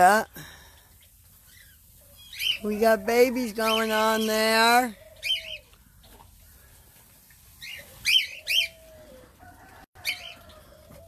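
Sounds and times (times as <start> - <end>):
birds chirping: 0.0 - 11.0
doves cooing: 1.5 - 7.0, 7.6 - 11.0.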